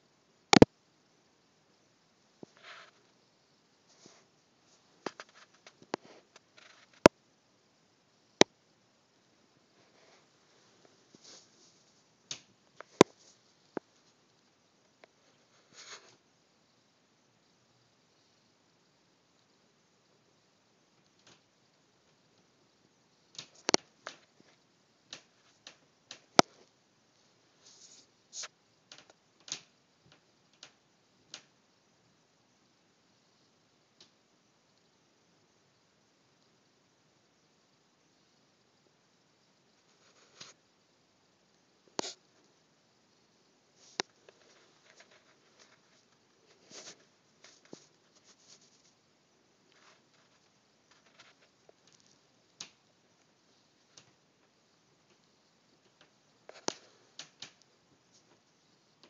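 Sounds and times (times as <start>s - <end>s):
soft rustle: 2.3s - 7.1s, 9.6s - 16.3s, 23.3s - 31.5s, 39.6s - 40.7s, 41.5s - 59.0s
light clicks and taps: 53.9s - 58.5s.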